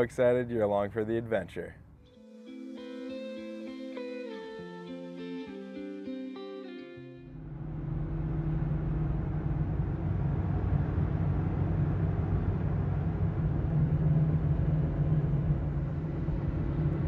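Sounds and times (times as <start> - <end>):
truck engine hum: 7.0 - 17.0.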